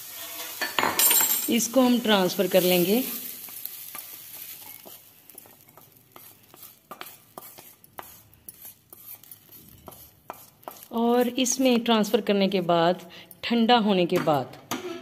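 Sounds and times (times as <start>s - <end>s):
wooden spatula scraping metal pan: 0.0s - 0.8s, 1.5s - 12.0s
faint pan sizzle: 0.0s - 13.1s.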